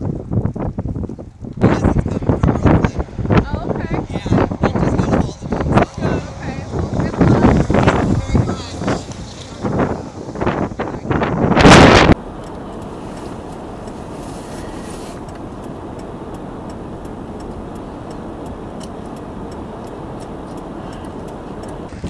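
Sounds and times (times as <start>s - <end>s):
vehicle engine idling: 1.6s - 22.0s
faint even ticking: 12.1s - 21.9s.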